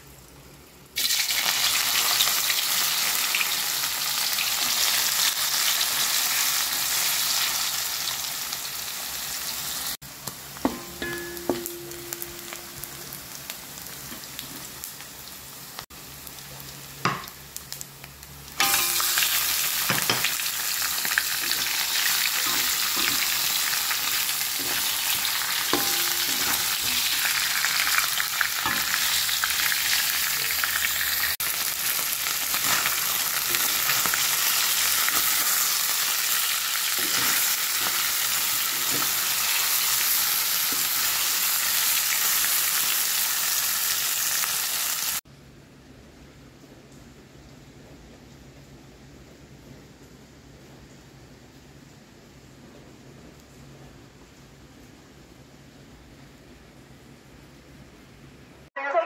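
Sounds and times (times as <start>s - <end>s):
fish frying: 0.0s - 45.2s
food sizzling in hot oil: 0.2s - 45.2s
metal spatula clinking and scraping: 18.6s - 20.4s, 21.4s - 29.6s, 36.9s - 39.8s.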